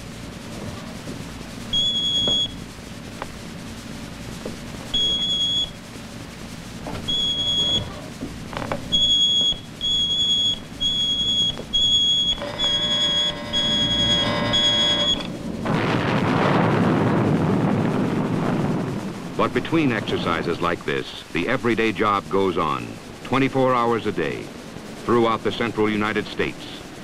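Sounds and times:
low buzzing tone: 0.0 - 19.0
high electronic alert beep: 7.1 - 7.9, 9.0 - 15.3.

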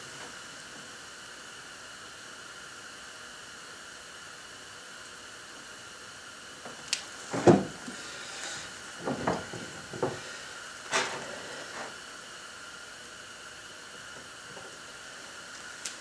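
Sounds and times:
steady hiss: 0.0 - 16.0
loud clunk: 7.3 - 7.8, 10.9 - 11.9.

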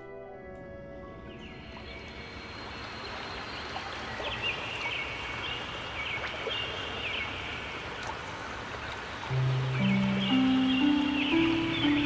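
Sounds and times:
fountain water splashing: 2.5 - 12.0.

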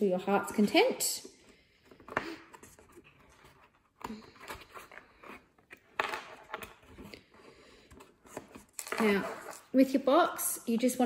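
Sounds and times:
chipboard creaking and scraping: 2.0 - 9.7.

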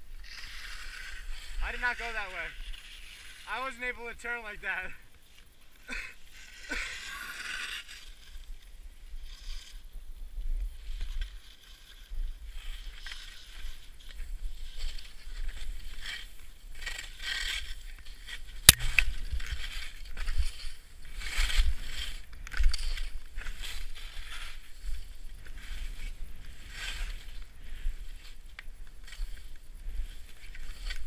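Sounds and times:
skis scraping through snow: 0.0 - 31.0
sharp click: 18.7 - 19.2.

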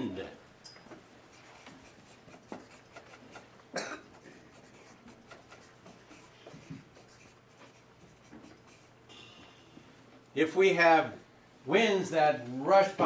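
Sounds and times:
marker scratching on paper: 1.3 - 3.5, 4.1 - 9.0.

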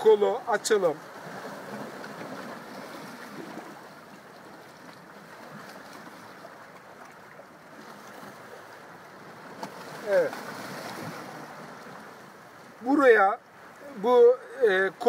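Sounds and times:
sea surf on rocky shore: 0.0 - 15.0.

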